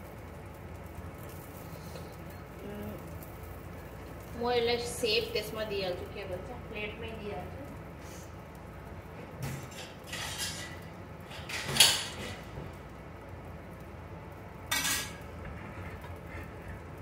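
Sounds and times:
dishes clinking and clattering: 9.4 - 12.8, 14.7 - 16.8.

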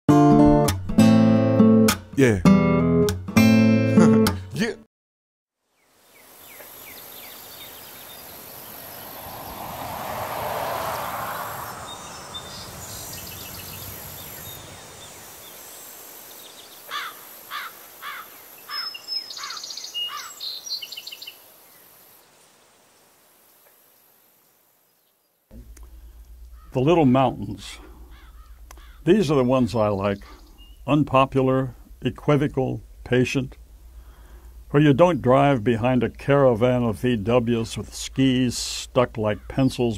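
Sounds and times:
soft rushing hiss: 5.7 - 26.7, 31.7 - 34.8
high insect drone: 5.8 - 19.7
birds calling: 6.1 - 22.0, 25.0 - 31.2, 39.2 - 39.9.

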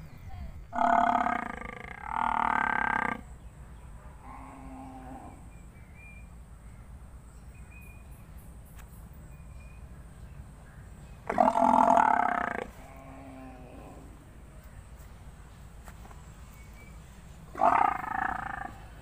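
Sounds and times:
water buffalo bellowing: 0.7 - 3.3, 11.2 - 14.1, 17.5 - 19.0.

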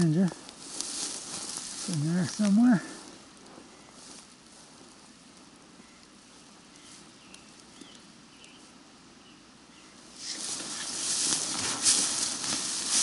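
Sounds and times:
footsteps through tall grass: 0.0 - 5.6, 10.1 - 13.0
faint bird song notes: 1.8 - 4.4, 5.4 - 11.4.

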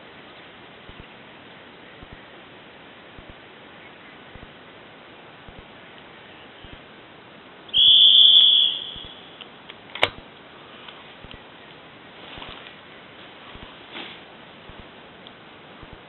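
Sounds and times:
high whistle blast: 7.7 - 9.4
sharp click: 9.0 - 10.2.

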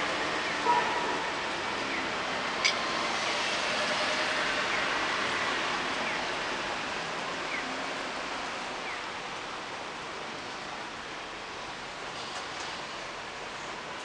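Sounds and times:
cars passing hiss: 2.1 - 14.0.

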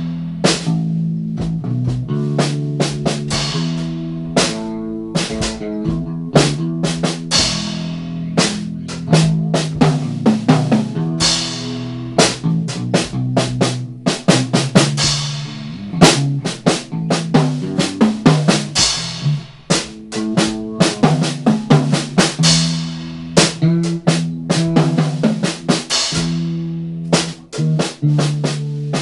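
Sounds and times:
drum kit playing jazz groove: 0.0 - 29.0
low bass guitar notes: 0.0 - 29.0.

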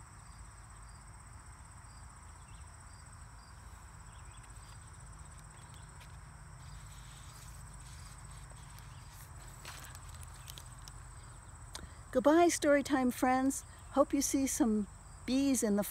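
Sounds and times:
book pages rustling: 4.5 - 11.0.

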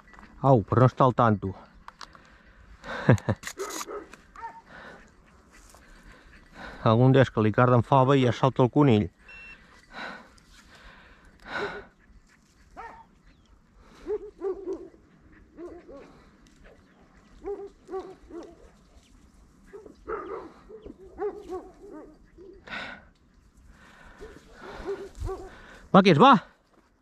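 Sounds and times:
man speaking: 0.4 - 1.7, 6.8 - 9.1, 25.9 - 26.5
dogs barking: 3.6 - 6.8, 11.4 - 22.9, 24.0 - 25.8.

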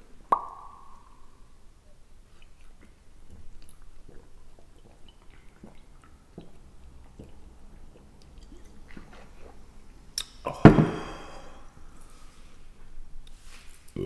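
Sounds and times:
man swallowing: 10.2 - 11.7.

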